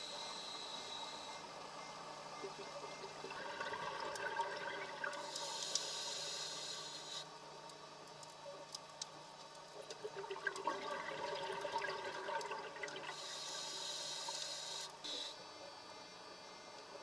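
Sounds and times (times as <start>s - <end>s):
regulator inhalation hiss: 5.2s - 7.3s, 13.1s - 15.4s
gurgling exhaled bubbles: 9.8s - 13.2s.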